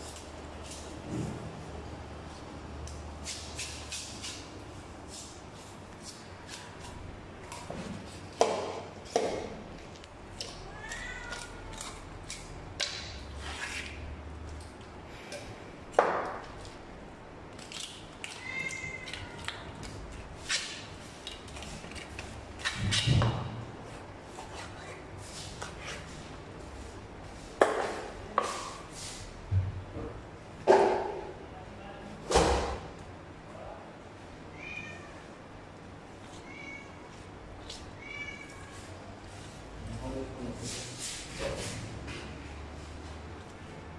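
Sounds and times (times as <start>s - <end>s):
knife scraping on cutting board: 13.3s - 14.0s
animal's high-pitched cries: 18.3s - 19.5s.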